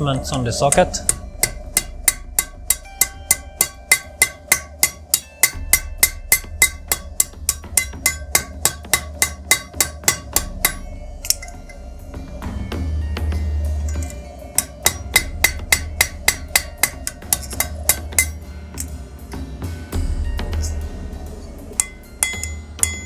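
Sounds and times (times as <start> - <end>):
hammer striking hot metal on anvil: 0.5 - 11.8, 13.8 - 19.0, 20.2 - 23.0.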